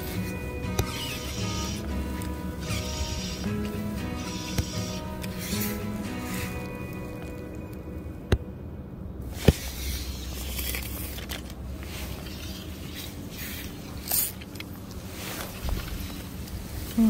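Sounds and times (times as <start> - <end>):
low steady rumble: 0.0 - 17.0
sharp clicks: 0.7 - 5.8.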